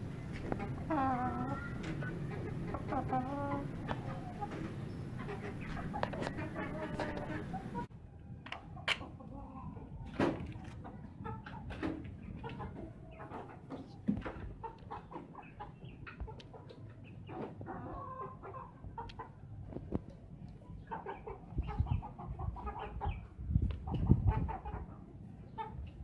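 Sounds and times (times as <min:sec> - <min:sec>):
rooster clucking: 0:00.2 - 0:07.9.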